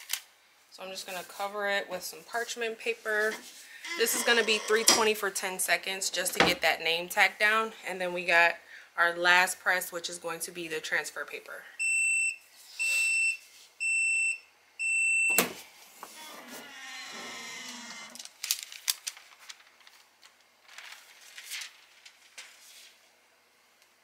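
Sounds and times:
clicks and paper rustling: 0:18.1 - 0:23.0.

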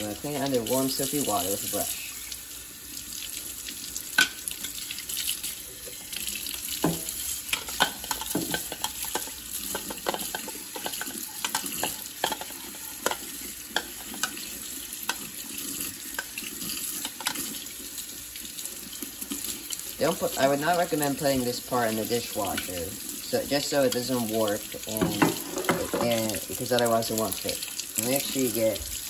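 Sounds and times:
tap water splashing into sink: 0:03.2 - 0:15.4, 0:22.0 - 0:23.0, 0:23.8 - 0:29.0.

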